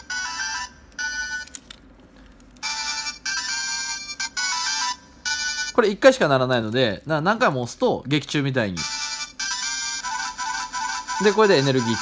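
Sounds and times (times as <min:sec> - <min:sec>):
toy beeping tune: 0:00.0 - 0:01.5, 0:02.6 - 0:05.8, 0:08.8 - 0:12.0.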